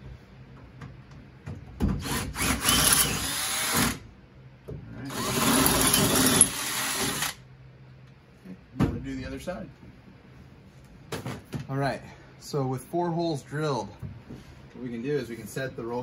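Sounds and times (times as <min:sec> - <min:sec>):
cordless drill boring through steel: 0:02.0 - 0:04.0, 0:05.1 - 0:07.4.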